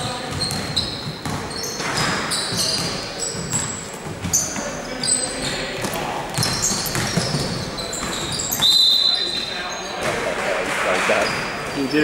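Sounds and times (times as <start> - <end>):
basketball bouncing on court: 0.0 - 4.7, 5.7 - 8.8
sneaker squeaks: 0.0 - 10.2, 11.1 - 12.0
voices in background: 0.0 - 12.0.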